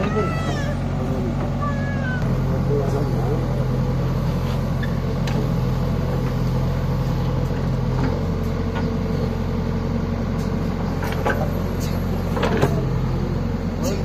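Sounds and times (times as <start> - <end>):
diesel engine running: 0.0 - 14.0
loader scooping wheat: 2.3 - 9.4.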